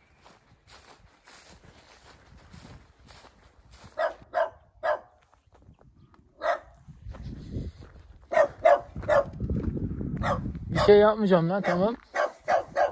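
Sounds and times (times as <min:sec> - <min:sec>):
footsteps on dry ground: 0:00.0 - 0:12.9
dog barking: 0:03.9 - 0:05.2, 0:06.4 - 0:06.8, 0:08.3 - 0:09.3, 0:10.2 - 0:12.9.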